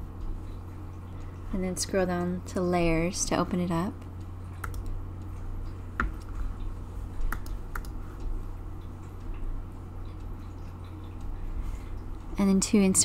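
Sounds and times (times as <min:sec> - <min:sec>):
low steady hum: 0:00.0 - 0:13.0
computer mouse clicks: 0:04.6 - 0:05.0, 0:07.2 - 0:08.0.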